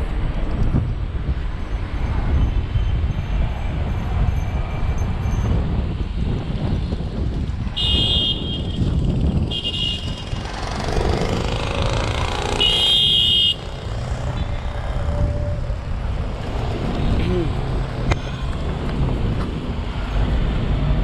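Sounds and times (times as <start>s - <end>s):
street traffic: 0.0s - 21.0s
wind rumbling on microphone: 0.0s - 21.0s
car horns tooting: 7.8s - 10.2s, 12.6s - 13.7s.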